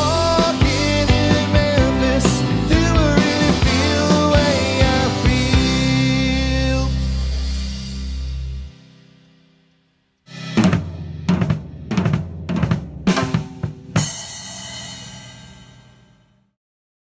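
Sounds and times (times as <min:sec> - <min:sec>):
drum fill: 0:00.0 - 0:08.8, 0:10.3 - 0:16.1
cymbal crash: 0:10.3 - 0:12.0, 0:13.1 - 0:16.3.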